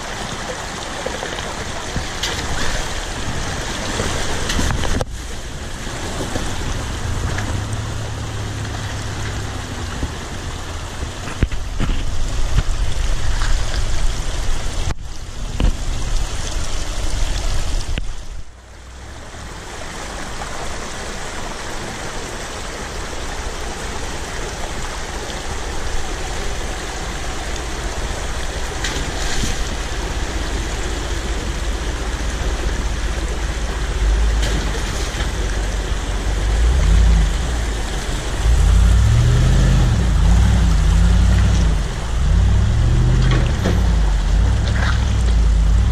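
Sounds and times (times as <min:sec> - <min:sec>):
creek rushing over rocks: 0:00.0 - 0:45.9
pickup truck engines running: 0:23.0 - 0:45.9
pickup engine revving: 0:36.1 - 0:45.9.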